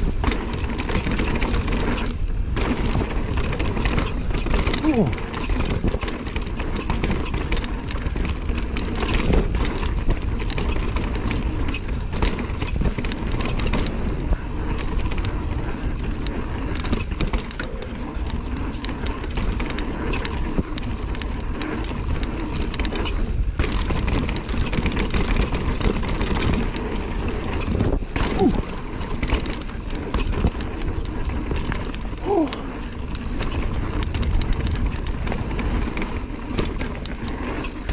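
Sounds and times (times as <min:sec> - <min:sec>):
bike rattling clicks and knocks: 0:00.0 - 0:37.9
bike tyre noise: 0:00.0 - 0:37.9
wind rumble on microphone: 0:00.0 - 0:37.9.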